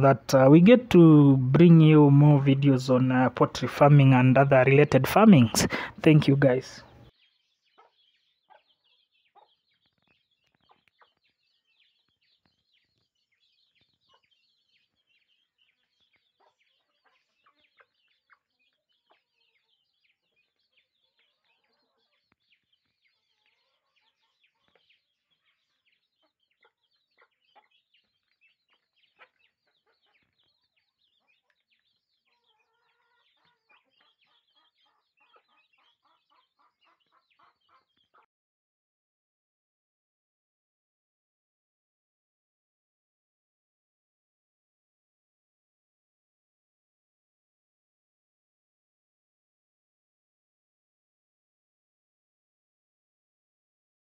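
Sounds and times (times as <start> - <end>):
chicks peeping: 0.0 - 38.3
hen clucking: 1.9 - 6.9.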